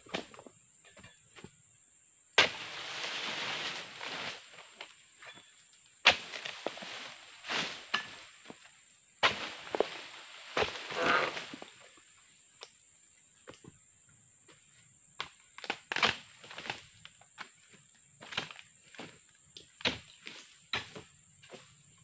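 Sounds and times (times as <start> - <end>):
frond falling through dry leaves: 2.5 - 5.0, 9.2 - 11.8.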